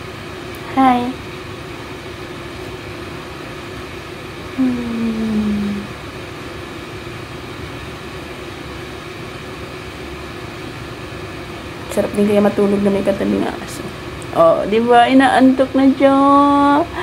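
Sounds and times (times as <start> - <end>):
faint constant tone: 0.0 - 17.0
machine-like hum: 0.0 - 17.0
woman humming low note: 4.6 - 5.9.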